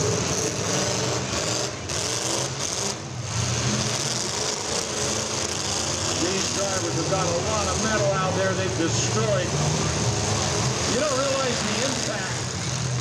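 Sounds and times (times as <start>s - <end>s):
car engines rumbling: 0.0s - 13.0s.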